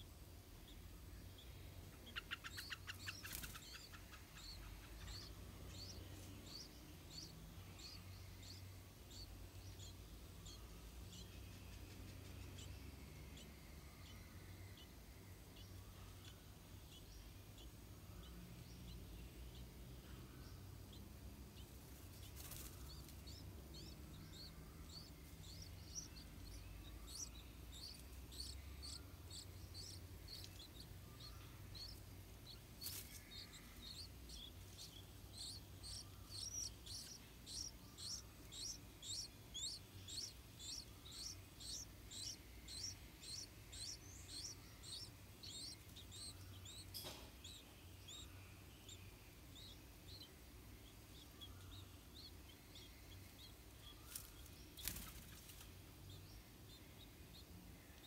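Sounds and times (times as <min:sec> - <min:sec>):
nestlings cheeping: 0:01.9 - 0:11.5, 0:20.9 - 0:57.5.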